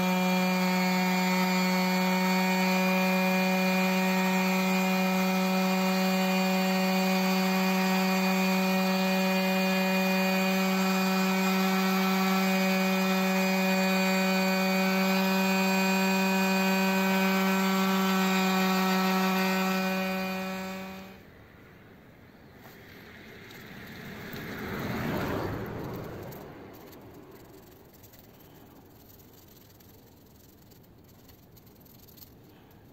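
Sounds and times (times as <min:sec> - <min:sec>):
electric sander humming: 0:00.0 - 0:21.2.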